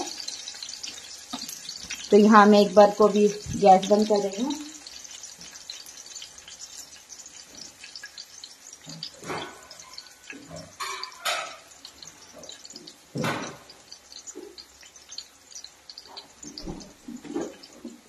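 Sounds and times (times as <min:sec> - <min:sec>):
chillies sizzling in oil: 0:00.0 - 0:18.0
oil popping: 0:00.0 - 0:18.0.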